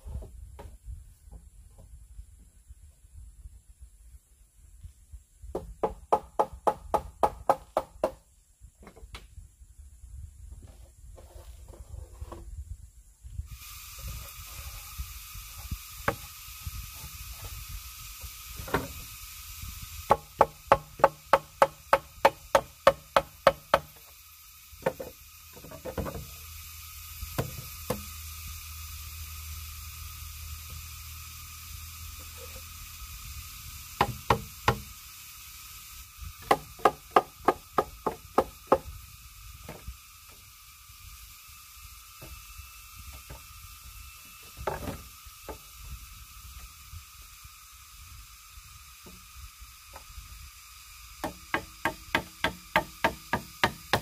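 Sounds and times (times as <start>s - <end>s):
hammer knocking on bamboo: 5.5s - 8.2s, 20.1s - 24.0s, 34.0s - 34.9s, 36.4s - 38.9s, 51.2s - 54.0s.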